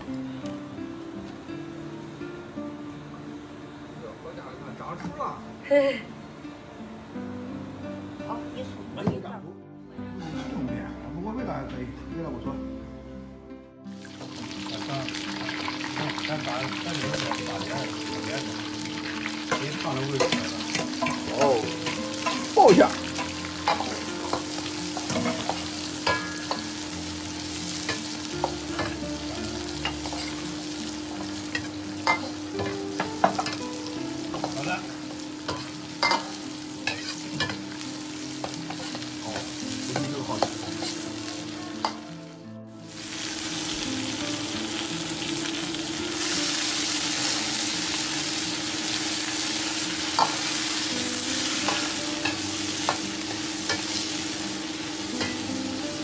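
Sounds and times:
food sizzling in hot oil: 13.9 - 56.0
metal ladle clanking on wok: 35.5 - 37.6.

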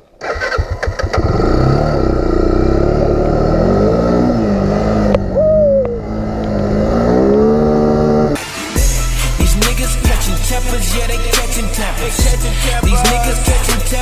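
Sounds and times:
atv engine running: 0.2 - 8.4
falling whistle-like tone: 5.3 - 6.1.

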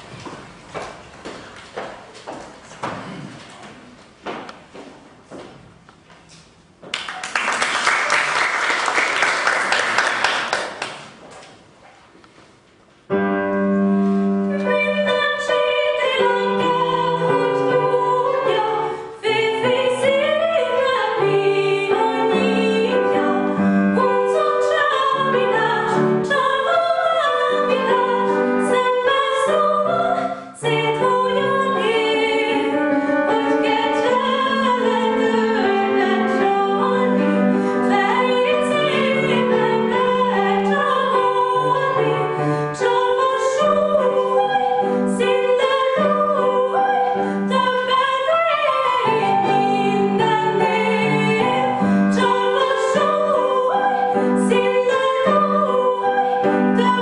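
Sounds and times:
applause: 6.9 - 11.2
piano accompaniment: 13.0 - 57.0
woman singing opera: 14.5 - 57.0.

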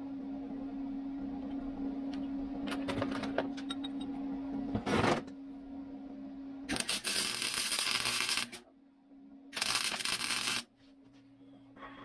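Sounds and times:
steady low hum: 0.0 - 12.0
welder arc crackling: 6.7 - 8.6, 9.6 - 10.7.

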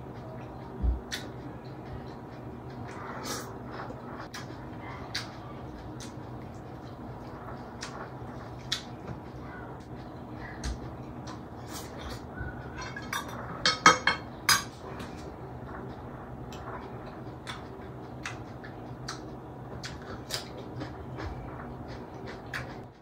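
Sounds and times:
plates and glass bowl clinking: 12.8 - 14.7
man chewing raw vegetable: 15.2 - 23.0.

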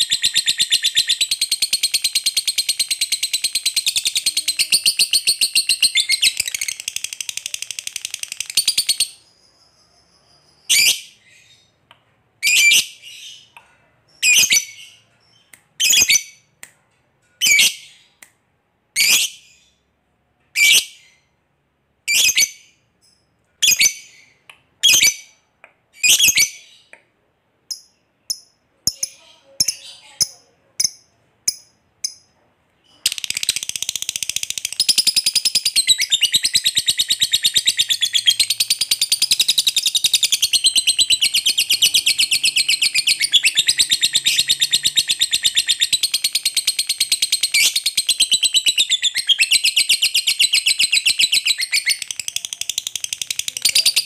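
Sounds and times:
shrill bird calls: 34.8 - 52.4.

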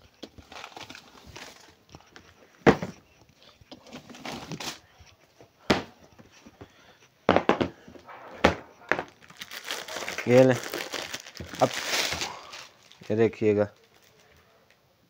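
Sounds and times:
cardboard boxes knocking on counter: 7.3 - 7.8.

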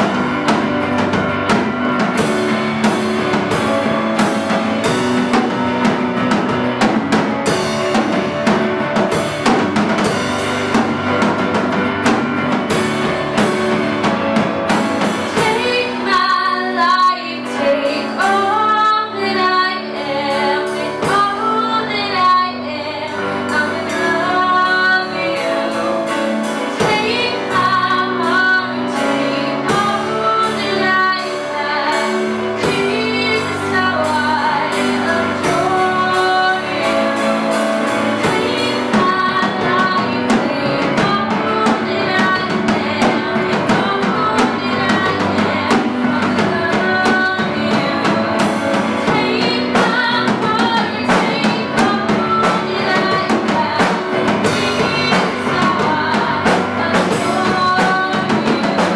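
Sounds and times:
live band playing: 0.0 - 58.9
woman singing: 14.7 - 58.9.

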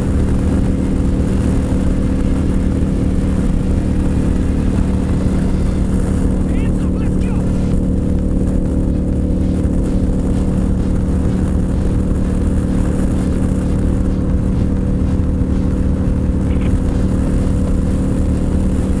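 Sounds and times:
motorcycle engine cruising: 0.0 - 19.0
wind and road noise: 0.0 - 19.0.

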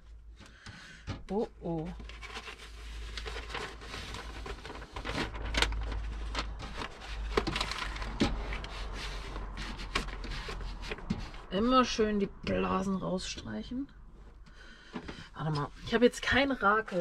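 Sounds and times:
film rubbing and crinkling: 1.3 - 12.0.

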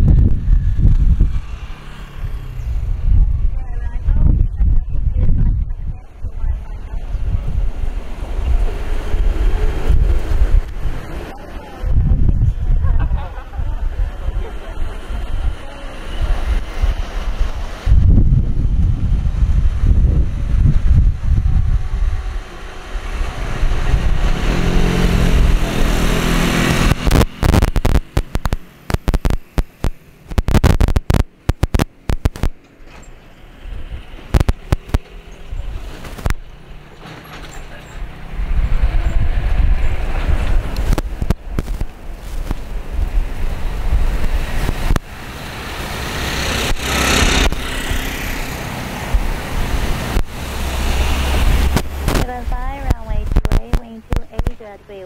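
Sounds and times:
wind buffeting microphone: 0.0 - 32.6, 38.0 - 55.0.

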